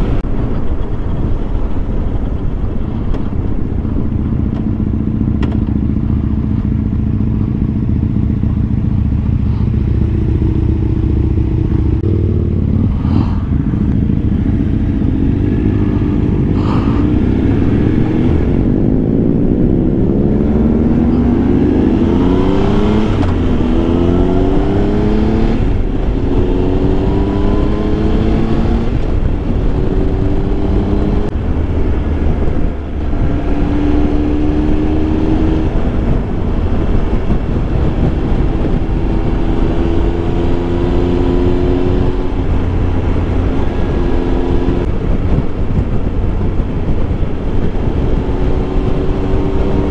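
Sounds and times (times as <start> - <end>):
motorcycle engine accelerating: 0.0 - 49.9
wind and road rumble: 0.0 - 49.9.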